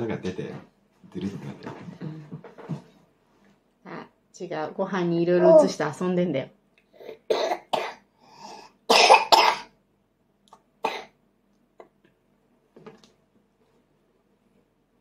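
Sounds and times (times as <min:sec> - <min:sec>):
person coughing: 0:07.3 - 0:08.0, 0:08.9 - 0:09.7.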